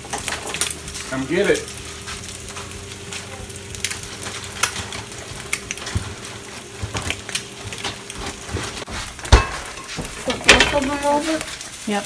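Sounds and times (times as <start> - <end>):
eggs sizzling in a skillet: 0.0 - 12.0
fat popping and crackling: 0.0 - 12.0.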